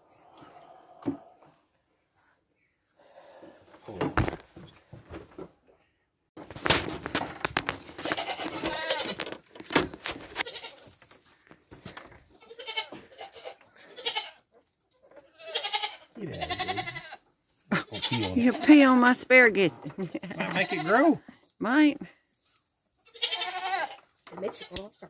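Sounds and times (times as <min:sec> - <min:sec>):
knocks and rustling: 0:03.8 - 0:05.7, 0:06.4 - 0:12.4
goat bleating: 0:08.0 - 0:09.3, 0:10.4 - 0:10.9, 0:12.4 - 0:19.1, 0:20.0 - 0:21.2, 0:23.0 - 0:25.0.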